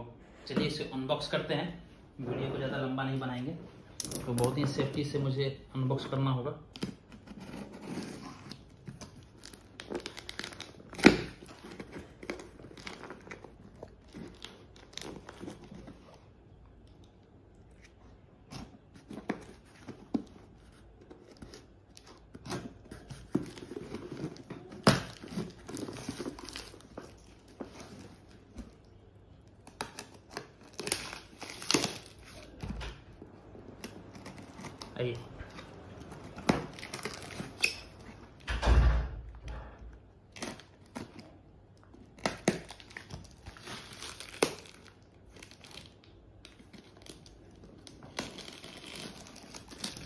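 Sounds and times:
tape tearing and crinkling: 6.8 - 16.2, 17.8 - 28.8, 29.5 - 32.7, 33.6 - 38.5, 40.3 - 50.0.

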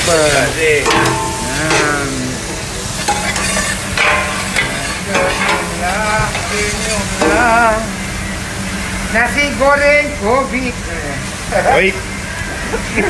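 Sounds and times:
shallots sizzling in hot oil: 0.0 - 13.0
metal spatula scraping a pan: 0.9 - 7.9.

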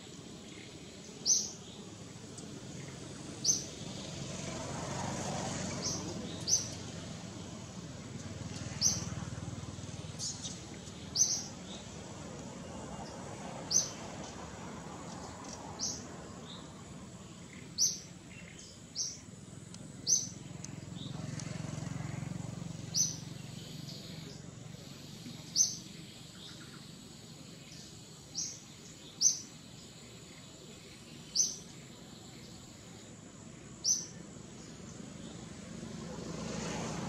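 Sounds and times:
bird chirping: 0.0 - 4.0, 5.7 - 6.9, 10.0 - 12.0, 15.4 - 21.4, 22.8 - 33.0, 33.6 - 35.4
faint outdoor background noise: 0.0 - 37.0.

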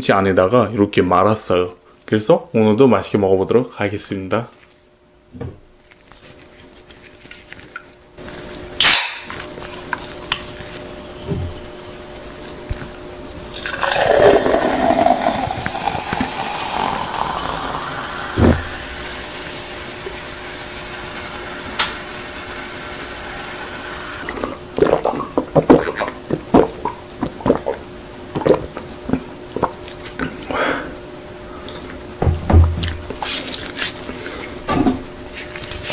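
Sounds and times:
can opening crack: 8.8 - 9.5
person gulping: 13.4 - 18.9, 24.2 - 31.0
soda pouring into glass: 13.4 - 21.6
soda fizzing hiss: 13.5 - 24.4.

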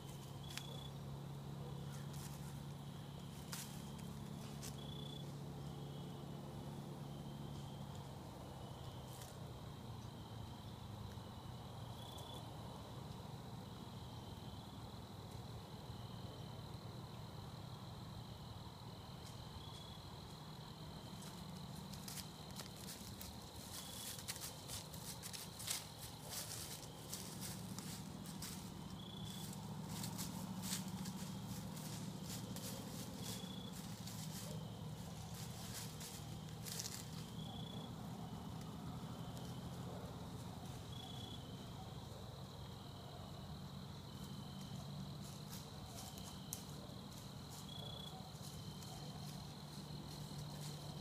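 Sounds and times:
low steady rumble: 0.0 - 46.0
crickets trilling: 0.0 - 51.0
footsteps crunching dry leaves: 21.0 - 37.8.

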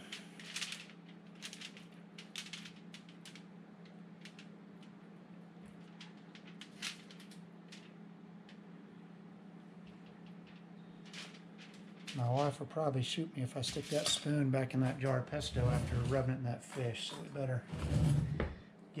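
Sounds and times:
aluminium foil crinkling: 0.0 - 3.4, 5.8 - 7.9, 10.1 - 12.5
steady low hum: 0.0 - 19.0.

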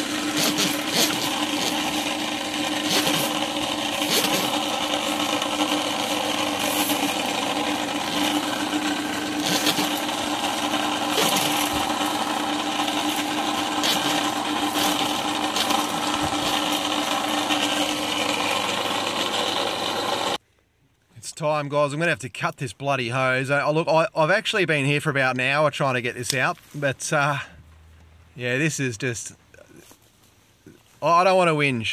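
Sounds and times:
constant motor hum: 0.0 - 20.4
drain-cleaning machine whirring: 0.0 - 20.4.

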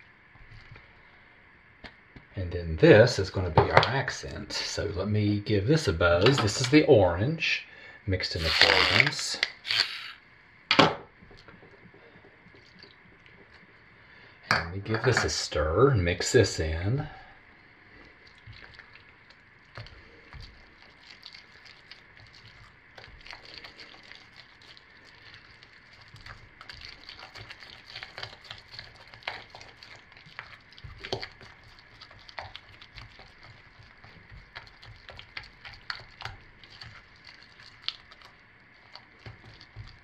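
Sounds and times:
spatula stirring thick soap batter: 17.8 - 40.0.

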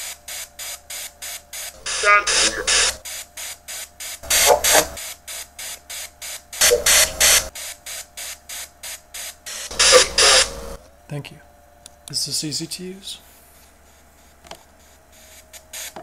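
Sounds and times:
chopped hissing static: 0.0 - 10.8, 14.3 - 16.0
voice-like fragments in static: 1.6 - 3.0, 4.2 - 5.0, 6.6 - 7.5, 9.4 - 10.8.

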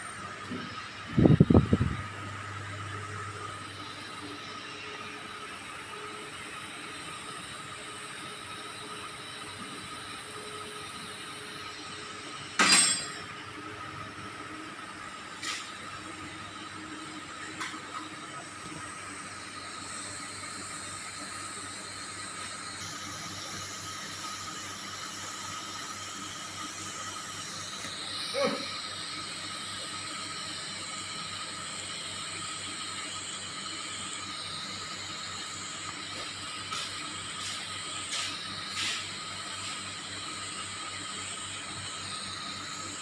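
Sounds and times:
welding arc hissing: 15.2 - 43.0.

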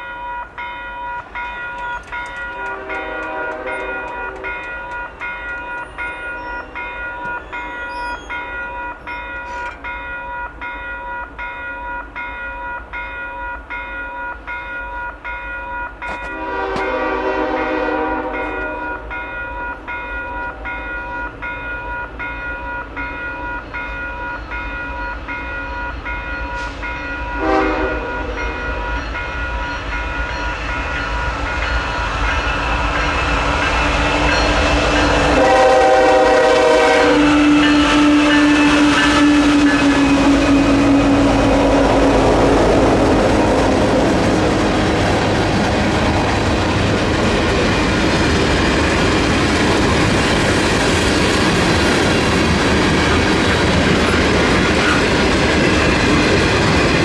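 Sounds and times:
locomotive engines rumbling: 0.0 - 13.7, 14.3 - 57.0
railroad crossing bell ringing: 0.0 - 44.9
train horn: 2.4 - 8.6, 16.2 - 19.3, 20.4 - 21.0, 26.5 - 29.0, 32.3 - 44.8.

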